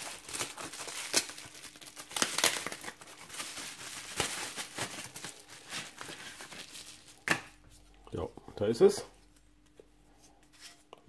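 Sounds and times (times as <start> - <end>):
bubble wrap crinkling and crackling: 0.0 - 7.3.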